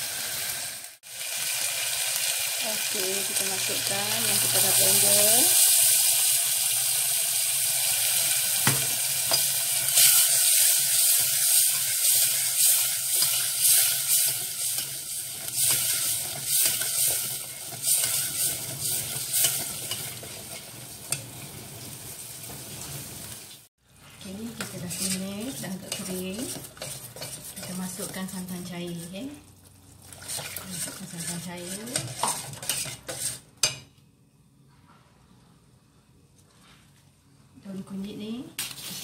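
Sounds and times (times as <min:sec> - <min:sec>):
paste sizzling and popping: 0:00.0 - 0:23.7, 0:24.5 - 0:33.8
ladle stirring in pot: 0:09.3 - 0:21.4, 0:24.0 - 0:33.9.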